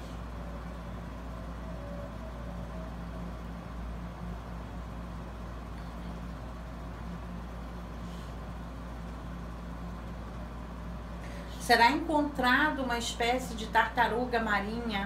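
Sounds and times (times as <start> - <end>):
faint constant hum: 0.0 - 15.0.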